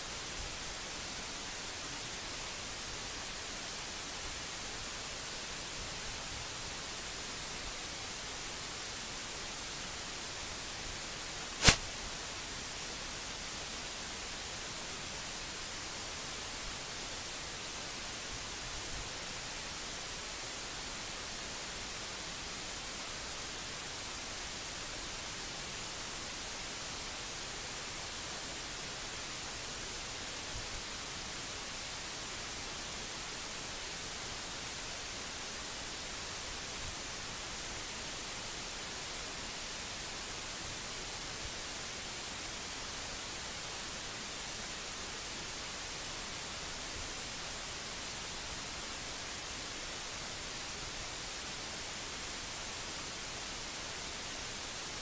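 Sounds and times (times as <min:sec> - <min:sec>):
open microphone hiss: 0:00.0 - 0:55.0
sharp click: 0:11.6 - 0:11.9.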